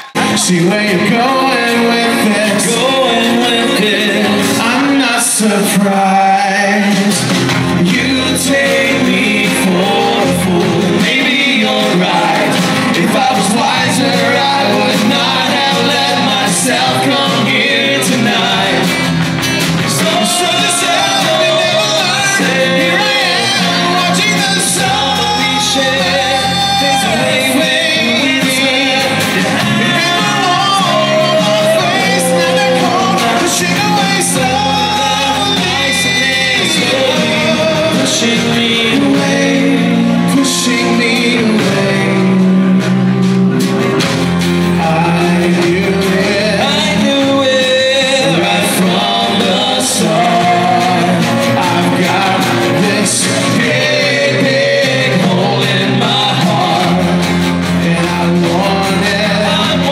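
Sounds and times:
acoustic guitar: 0:00.0 - 0:59.9
man singing: 0:00.0 - 0:59.9.

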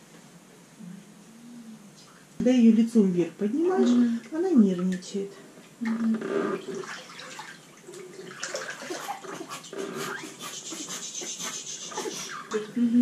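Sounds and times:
bath water sloshing and splashing: 0:06.5 - 0:10.3.

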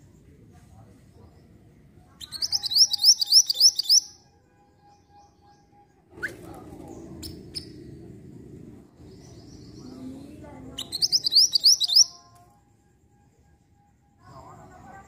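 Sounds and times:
low background noise: 0:00.0 - 0:15.0
bird chirp: 0:01.2 - 0:12.3
bird singing high notes: 0:02.2 - 0:04.2, 0:10.8 - 0:12.2.

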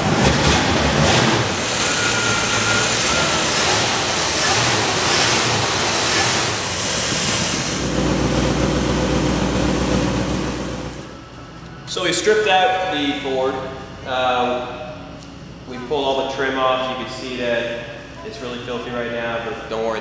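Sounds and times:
car engine idling: 0:00.0 - 0:11.1
deep exhaust rumble: 0:00.0 - 0:11.1.

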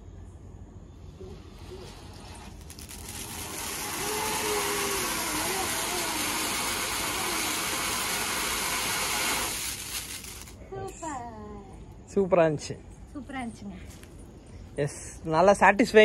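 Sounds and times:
firework fountain hissing: 0:01.0 - 0:10.6.

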